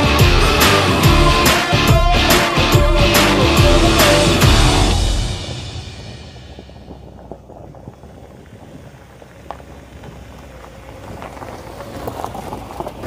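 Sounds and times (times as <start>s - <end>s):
engine rumble: 0.0s - 13.0s
tyres crunching over stones: 6.4s - 13.0s.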